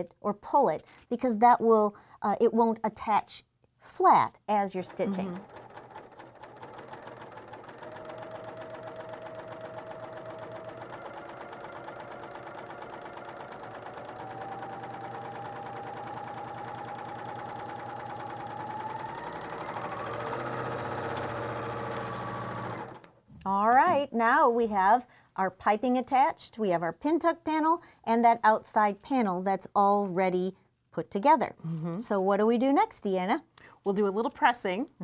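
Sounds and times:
serger motor whine: 7.9s - 23.1s.

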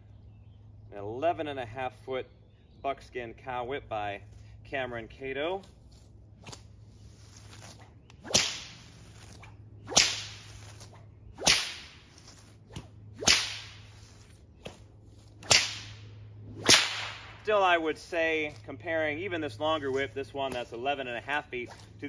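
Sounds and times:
whip cracking: 7.4s - 17.4s.

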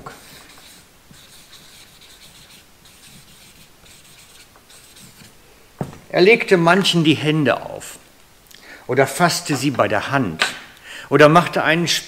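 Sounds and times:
marker scratching on paper: 0.1s - 5.4s.

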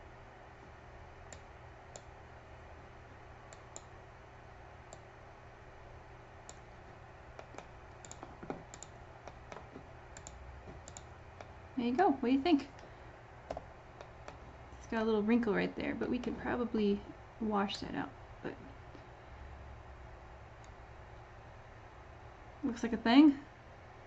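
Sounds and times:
low steady hum: 0.0s - 24.0s
computer mouse clicks: 1.3s - 2.1s, 3.5s - 3.9s, 6.4s - 6.7s, 7.3s - 11.5s, 13.5s - 14.4s.

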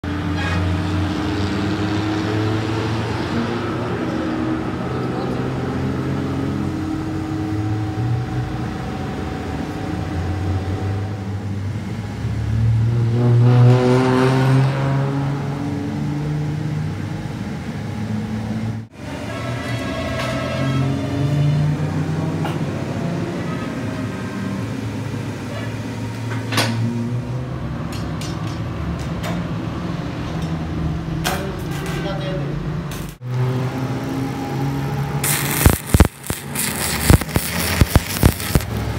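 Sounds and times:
motor humming: 35.2s - 38.9s.

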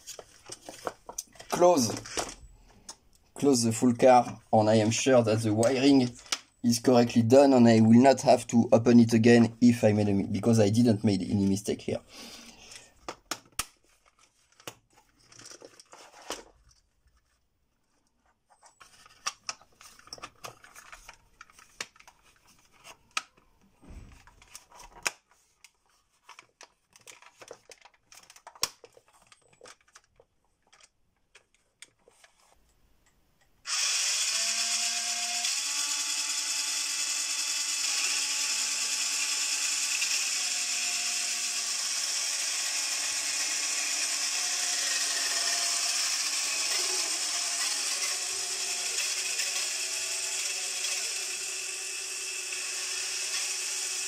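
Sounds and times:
plastic clicks and handling: 12.7s - 17.4s, 18.6s - 33.5s
toy car motors whirring: 33.7s - 54.0s.

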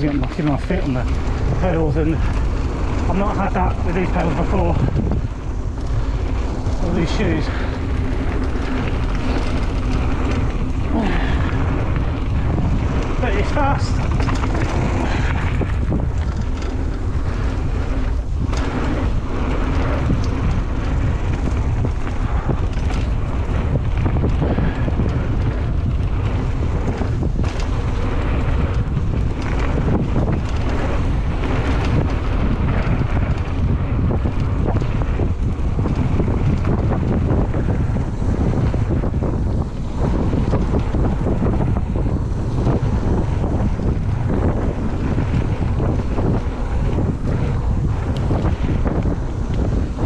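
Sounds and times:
bike rattling and knocking: 0.0s - 50.0s
tyres roaring on dirt trail: 0.0s - 50.0s
wind buffeting microphone: 0.0s - 50.0s.

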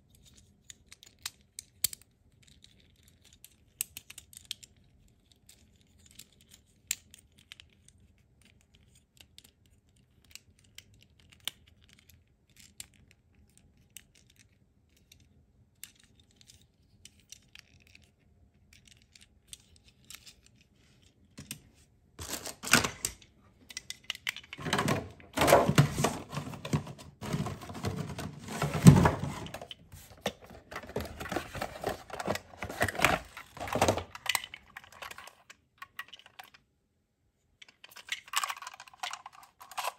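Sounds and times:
rustling and scraping of toy box: 22.2s - 23.2s, 24.2s - 36.6s, 37.6s - 39.9s.

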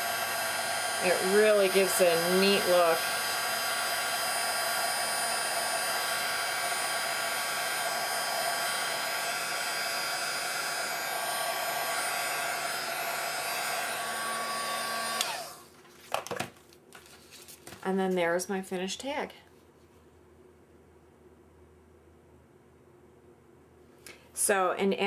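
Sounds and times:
heat gun blowing: 0.0s - 15.7s.

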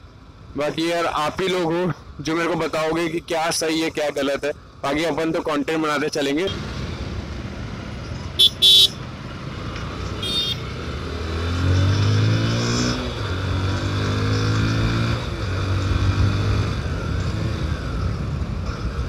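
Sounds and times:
road and wind noise: 0.0s - 19.0s
vehicle horn beeps: 8.4s - 9.0s, 10.2s - 10.6s
motorbike engine accelerating: 9.3s - 18.2s.

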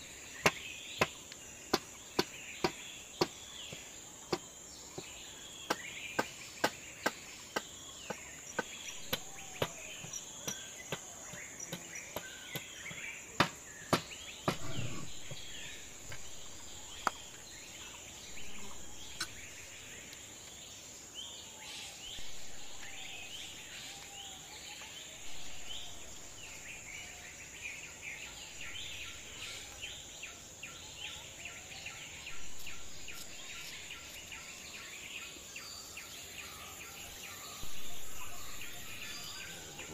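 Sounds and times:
birds chirping: 0.0s - 39.9s
high insect drone: 0.0s - 39.9s.

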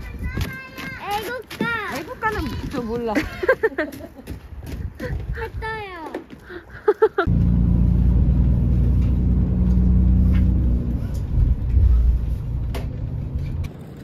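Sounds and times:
vehicle engine and road noise: 7.2s - 14.0s.

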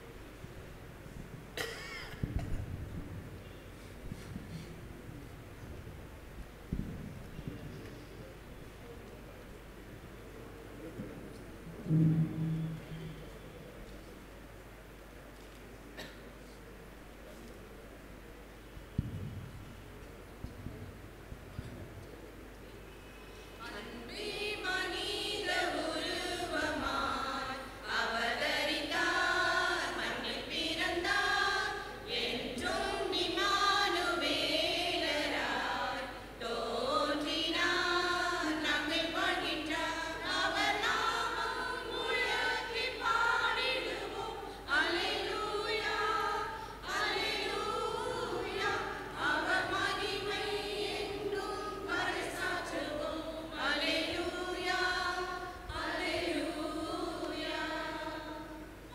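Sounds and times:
choir singing a carol: 23.1s - 58.9s.

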